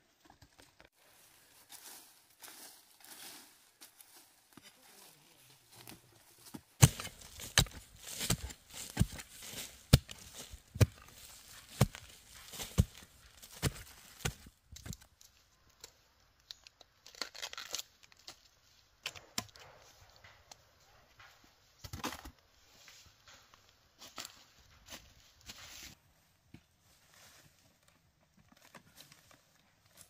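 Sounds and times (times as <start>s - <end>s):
plant stalks rustling and tearing: 6.8s - 15.2s, 16.4s - 18.5s.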